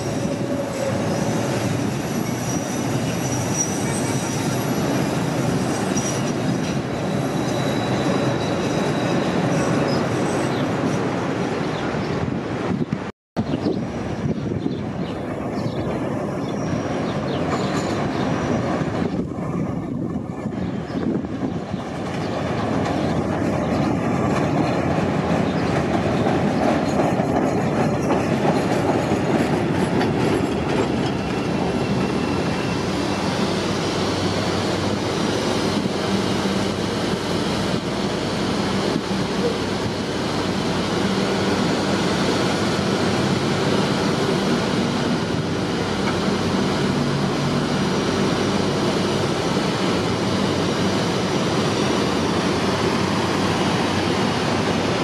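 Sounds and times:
faint wheel squeal: 0.1 - 4.8
train wheels clattering over rails: 21.2 - 36.1.

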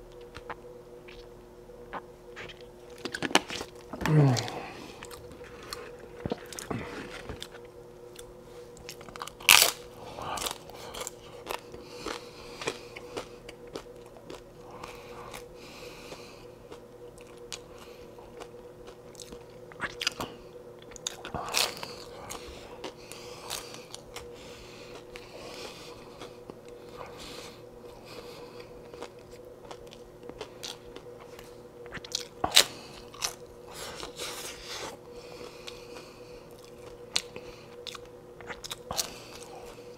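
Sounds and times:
chewing crunches: 2.4 - 39.9
crunching bites of tacos: 2.4 - 39.9.

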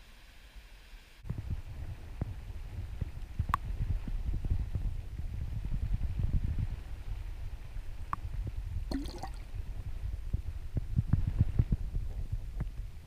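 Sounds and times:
underwater current rumble: 8.9 - 9.6.

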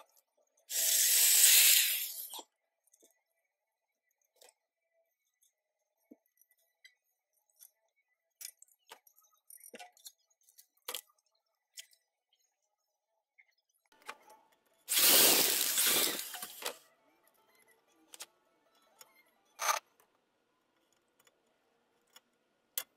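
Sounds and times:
tool hissing on sheet metal: 0.7 - 2.4, 14.9 - 16.7.

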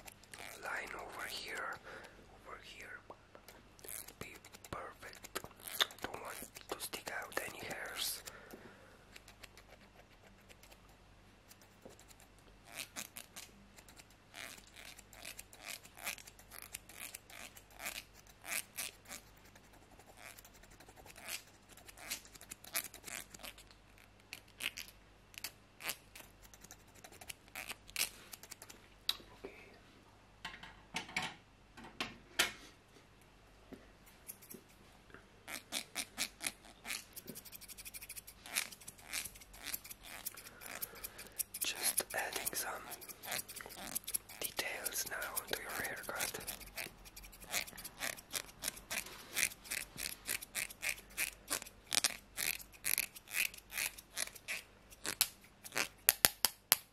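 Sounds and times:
scissors snipping hair: 3.8 - 8.3, 11.5 - 19.3, 34.2 - 34.6, 35.5 - 56.9.

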